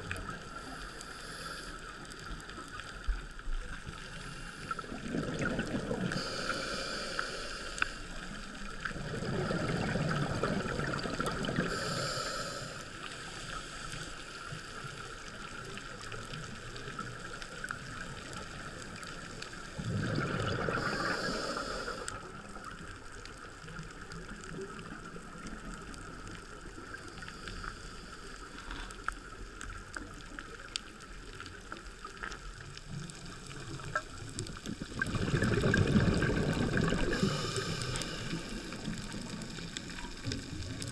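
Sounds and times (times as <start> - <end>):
muffled underwater ambience: 0.0 - 40.9
rushing bubbling bursts: 4.8 - 6.4, 8.8 - 11.8, 19.8 - 21.6, 34.5 - 39.8.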